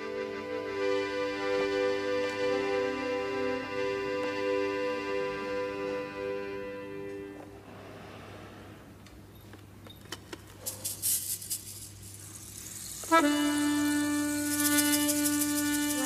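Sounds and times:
accordion sustained chord: 0.0s - 7.7s, 13.0s - 16.0s.

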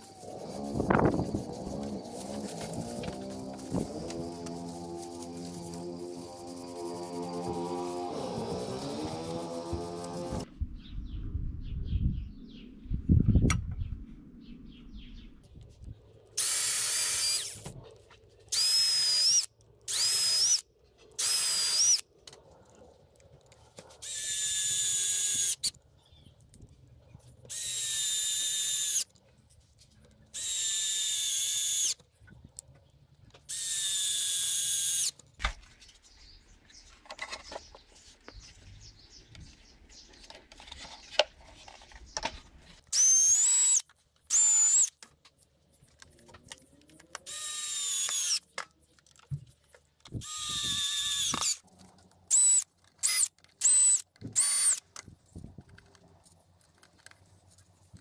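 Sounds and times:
power drill whining: 0.0s - 10.5s, 16.4s - 17.6s, 18.5s - 20.6s, 21.2s - 22.0s, 27.5s - 29.1s, 30.4s - 32.0s, 33.5s - 35.2s, 42.9s - 44.9s, 47.3s - 48.4s, 50.2s - 51.6s, 52.3s - 54.8s.

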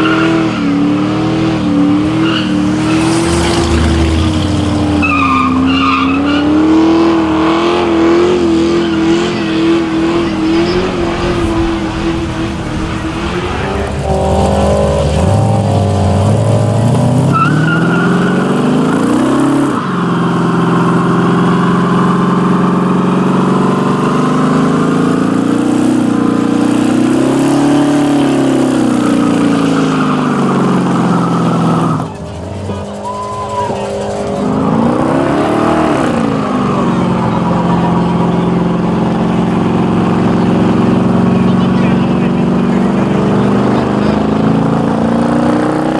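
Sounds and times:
car engine revving high: 0.0s - 45.9s
tyres spinning: 8.4s - 45.0s.

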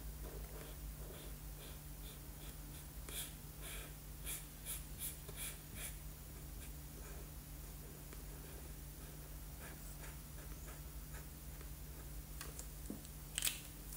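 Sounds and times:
steady low hum: 0.0s - 13.9s
marker scratching on paper: 0.2s - 7.3s, 8.3s - 12.2s.

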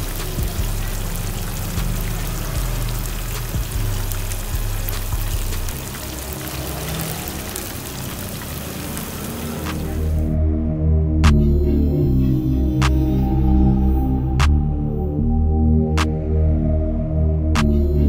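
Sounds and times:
background music: 0.0s - 7.7s, 8.8s - 18.0s
oil sizzling and bubbling: 0.0s - 10.2s.

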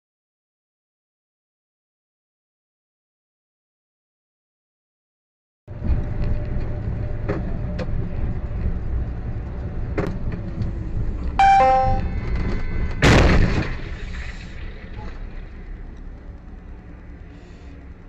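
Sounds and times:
road and engine rumble: 5.7s - 11.4s, 12.0s - 18.0s.

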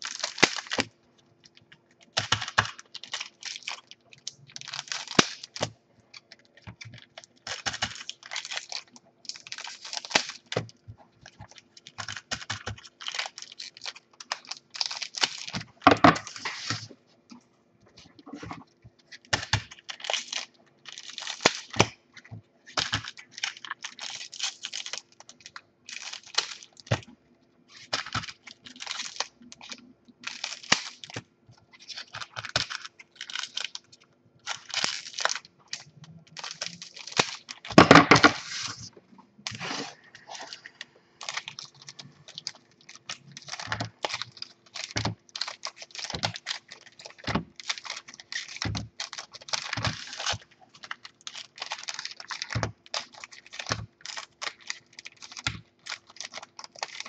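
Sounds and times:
scissors snipping crinkly wrapper: 0.0s - 15.8s, 19.1s - 22.0s, 22.7s - 27.1s, 27.7s - 37.9s, 40.2s - 57.0s.

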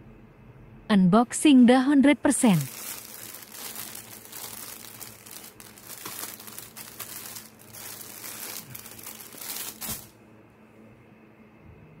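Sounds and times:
plastic wrapping crinkling: 2.5s - 10.2s.

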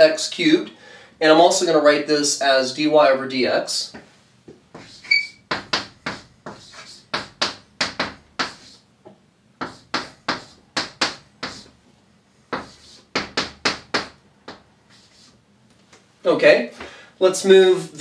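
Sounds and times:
chalk tapping and scraping on blackboard: 3.9s - 11.8s, 12.5s - 15.4s.

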